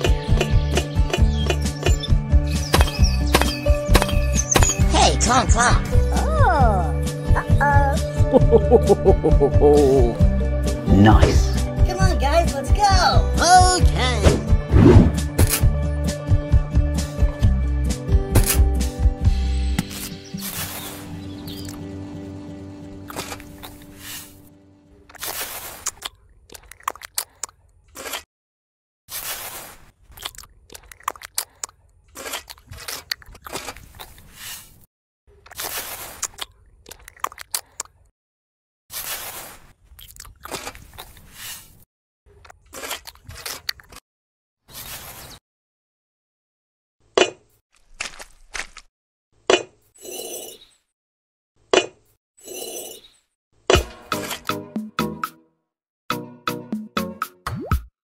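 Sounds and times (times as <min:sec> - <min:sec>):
crunching and scraping: 0:23.1 - 0:24.4, 0:29.1 - 0:37.9, 0:38.9 - 0:44.0, 0:47.7 - 0:48.9.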